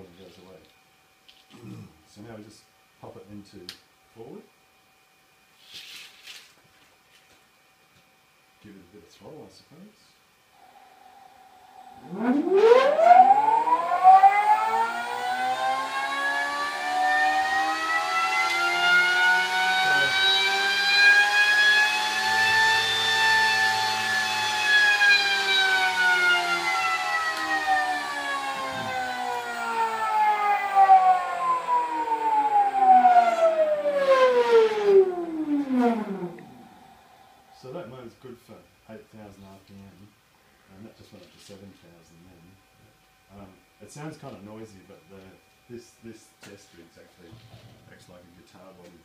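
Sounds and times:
electric motor whining: 0:10.6 - 0:37.1.

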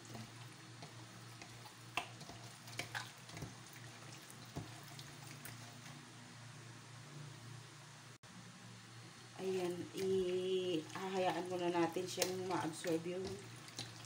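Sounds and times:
wet squelching of meat kneading: 0:00.0 - 0:06.0, 0:09.4 - 0:14.0.

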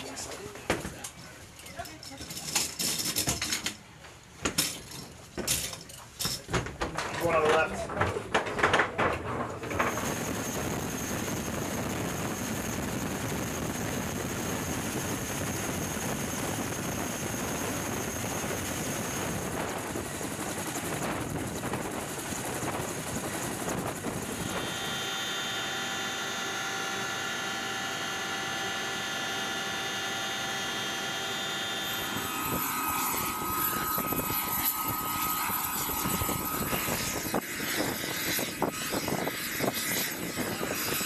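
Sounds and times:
helicopter engines and rotors: 0:09.6 - 0:41.0
high turbine whine: 0:09.6 - 0:41.0.

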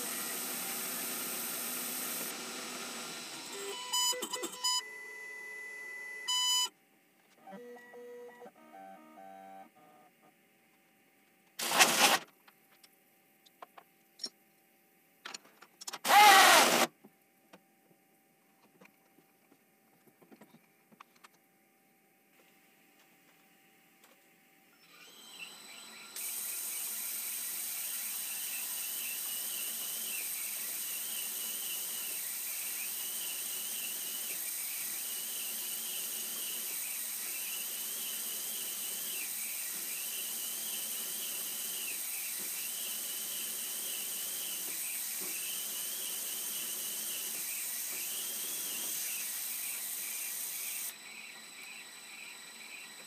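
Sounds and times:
end mill cutting: 0:16.0 - 0:16.9.

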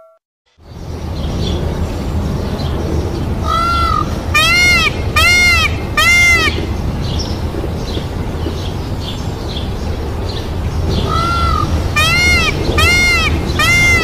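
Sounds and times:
peafowl calling: 0:03.4 - 0:06.8, 0:11.0 - 0:14.0.

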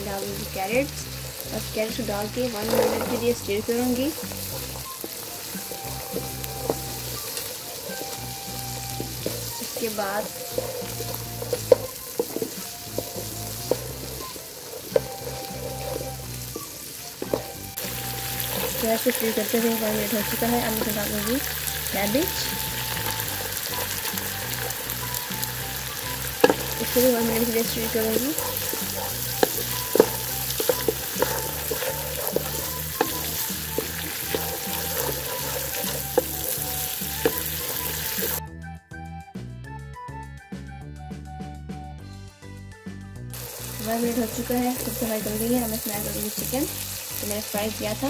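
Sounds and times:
spatula scraping a wok: 0:00.0 - 0:38.4, 0:43.4 - 0:48.0
vegetables sizzling in hot oil: 0:00.0 - 0:38.4, 0:43.3 - 0:48.0
wooden spatula knocking on pan: 0:26.4 - 0:37.7.

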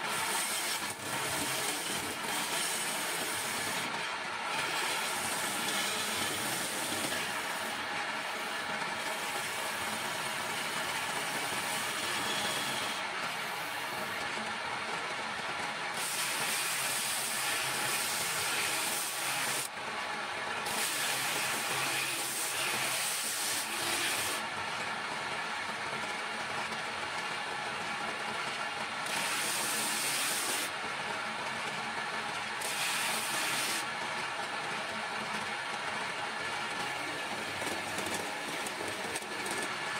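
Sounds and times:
steel tool ground on grinder: 0:00.0 - 0:14.1, 0:16.0 - 0:19.7, 0:20.6 - 0:24.4, 0:29.0 - 0:30.7, 0:32.6 - 0:33.9, 0:36.8 - 0:39.9
gouge cutting turning wood: 0:00.1 - 0:03.9, 0:04.5 - 0:07.7, 0:11.2 - 0:13.9, 0:20.6 - 0:24.4, 0:29.0 - 0:30.7, 0:32.6 - 0:33.8
lathe electric motor running: 0:00.1 - 0:14.8, 0:15.6 - 0:25.7, 0:31.5 - 0:39.9.

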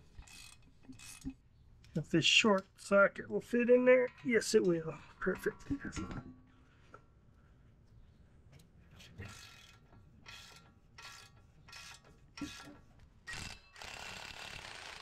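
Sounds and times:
hand ratchet clicking: 0:09.3 - 0:15.0.

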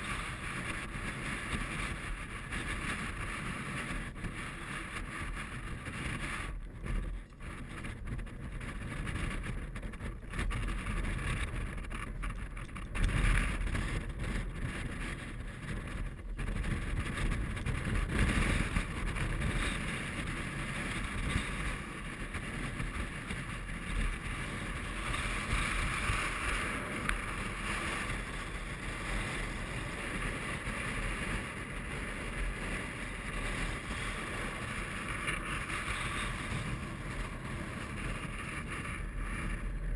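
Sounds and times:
strong wind buffeting microphone: 0:00.0 - 0:39.9.

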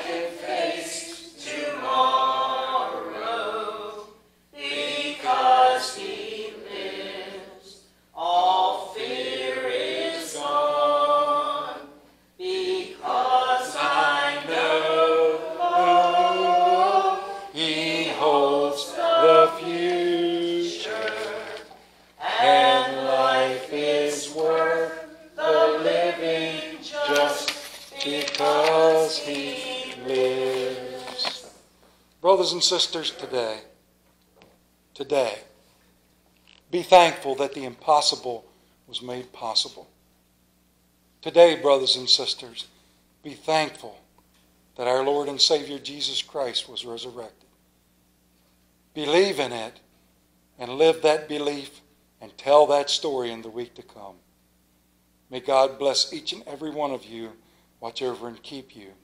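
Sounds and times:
a cappella hymn singing: 0:00.0 - 0:33.7.

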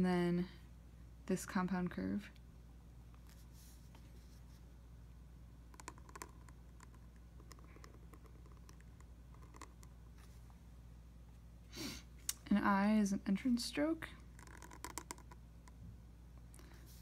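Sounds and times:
pen nib scratching on paper: 0:05.7 - 0:09.9, 0:14.3 - 0:15.8.

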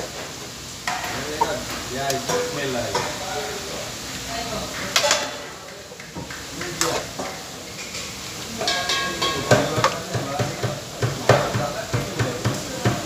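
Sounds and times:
metal spoon knocking against pan: 0:02.3 - 0:03.2, 0:08.6 - 0:13.0.

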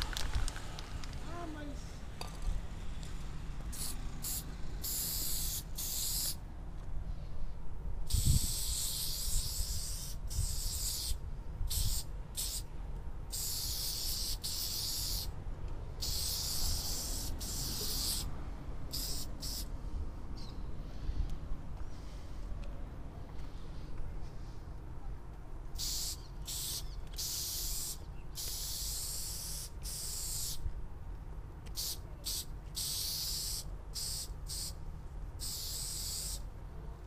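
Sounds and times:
spray paint can hissing: 0:03.7 - 0:06.4, 0:08.1 - 0:12.7, 0:13.3 - 0:15.3, 0:16.0 - 0:18.3, 0:18.9 - 0:19.7, 0:25.8 - 0:30.6, 0:31.7 - 0:34.8, 0:35.4 - 0:36.4.

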